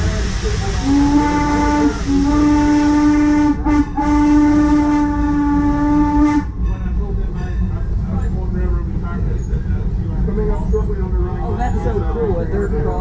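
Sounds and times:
steam locomotive whistle: 0.0 - 6.6
train rumbling: 0.0 - 13.0.

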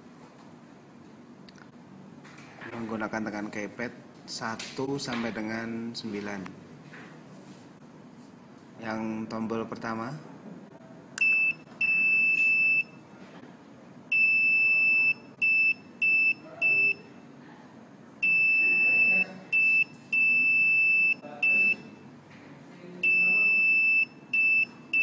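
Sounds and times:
electronic buzzer beeping morse code: 11.2 - 13.0, 14.1 - 17.1, 18.2 - 22.0, 23.0 - 25.0.

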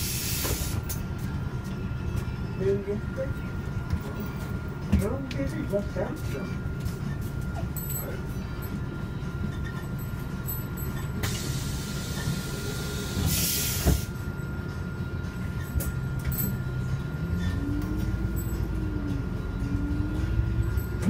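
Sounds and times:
air hiss of bus doors: 0.0 - 1.0, 11.2 - 14.2
bus engine pulling away: 0.0 - 2.2, 11.1 - 21.0.

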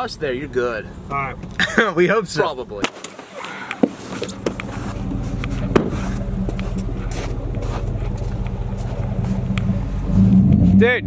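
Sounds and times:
vehicle engine running: 3.9 - 11.0
sharp knock: 5.7 - 6.0.

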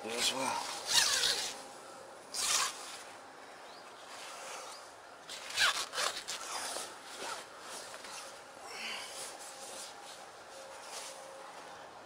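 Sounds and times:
zip rasping: 0.7 - 1.6, 2.3 - 3.0, 4.2 - 8.4
nylon fabric handling: 5.3 - 11.9.

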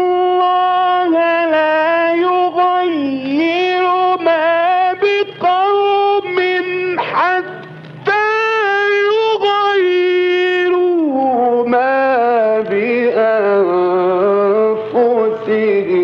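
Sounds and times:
man reciting melodically: 0.0 - 16.0.

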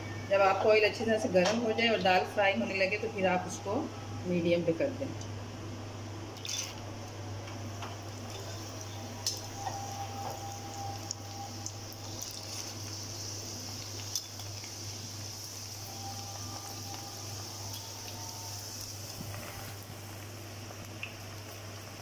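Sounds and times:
lentils sizzling in hot oil: 7.7 - 22.0.

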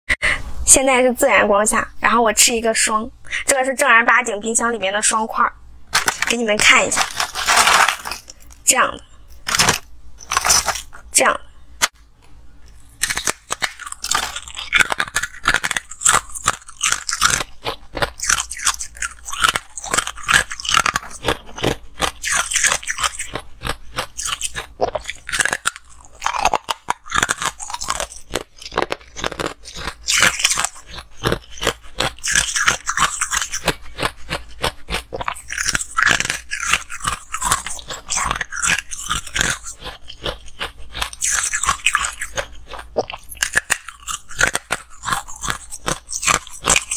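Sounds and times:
frost being chewed crunching: 5.9 - 8.6, 9.3 - 11.0, 12.6 - 46.9.

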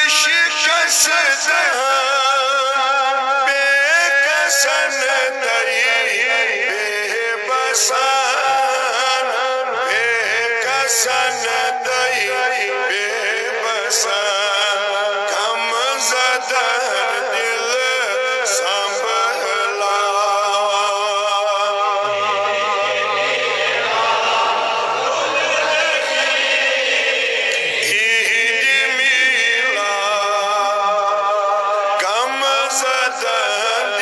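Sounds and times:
man singing devotional hymn: 0.0 - 24.4, 25.0 - 34.0.

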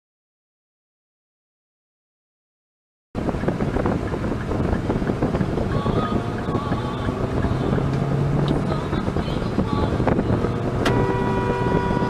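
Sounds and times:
car road and wind noise: 3.2 - 12.0.

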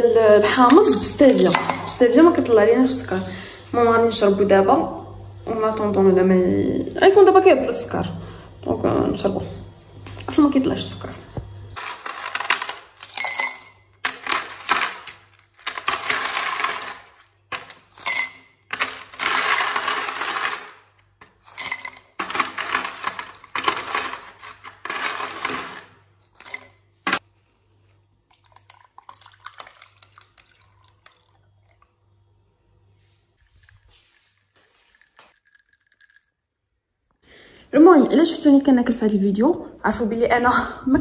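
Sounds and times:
ice cubes clattering into glass: 11.8 - 20.8, 21.4 - 26.7, 33.5 - 36.4
ice tray cracking: 14.0 - 17.7
liquid pouring over ice: 28.3 - 32.0, 33.4 - 37.2.

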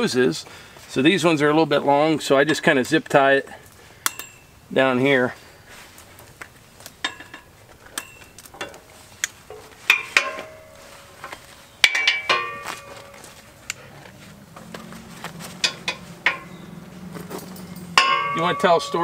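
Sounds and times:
metal clinks and taps: 4.0 - 4.5, 7.0 - 8.9, 9.5 - 13.8, 15.6 - 19.0.

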